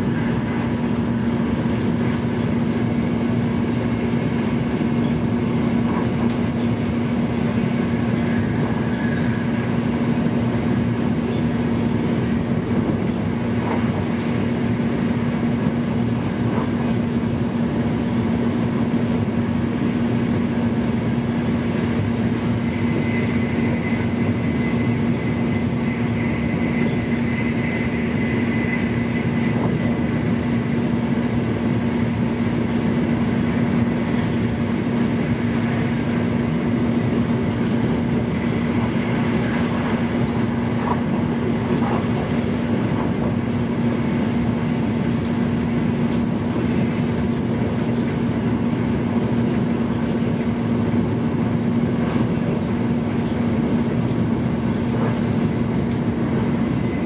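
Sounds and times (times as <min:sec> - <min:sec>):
train interior rumble: 0:00.0 - 0:57.0.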